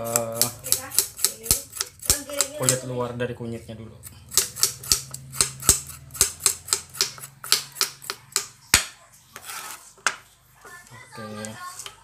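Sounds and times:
knife peeling root: 0.0s - 2.9s.

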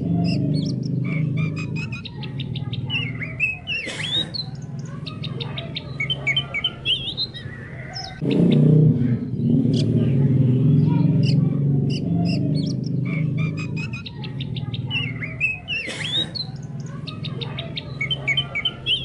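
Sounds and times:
low pulsing background sound: 0.0s - 3.7s, 8.2s - 19.0s
bird singing chirps and whistles: 0.1s - 8.6s, 11.2s - 19.0s.

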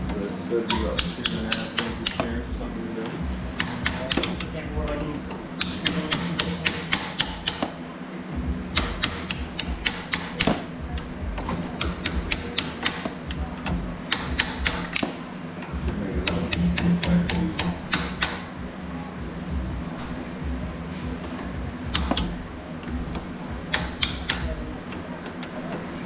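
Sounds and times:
metal clicking: 0.7s - 2.3s, 3.5s - 4.6s, 5.2s - 7.8s, 8.8s - 10.7s, 11.4s - 15.3s, 21.3s - 25.9s.

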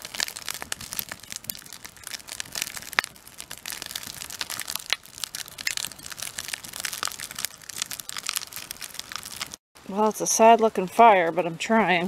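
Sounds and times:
campfire crackling and snapping: 0.0s - 9.6s.

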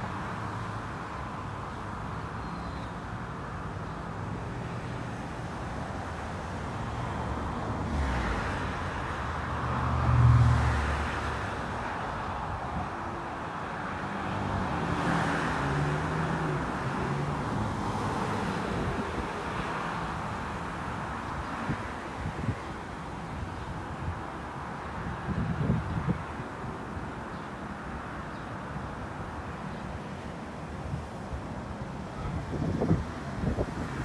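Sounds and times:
rush of traffic noise: 0.0s - 34.0s.

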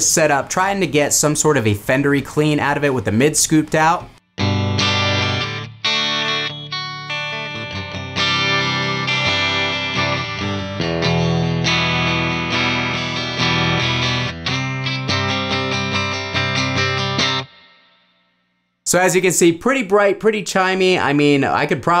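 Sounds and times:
clean electric guitar chords: 4.2s - 17.9s.

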